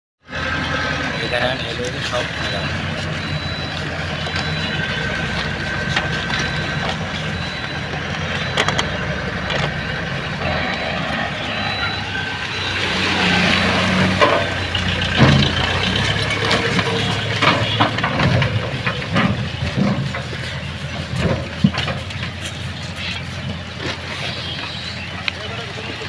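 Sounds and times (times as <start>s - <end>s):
tractor engine running: 0.3s - 26.0s
knocks and rustles: 14.1s - 24.1s.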